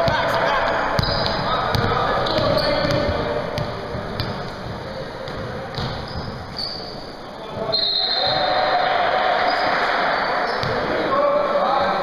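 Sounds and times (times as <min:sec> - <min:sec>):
basketball bouncing in a hall: 0:00.0 - 0:08.8, 0:09.4 - 0:11.1.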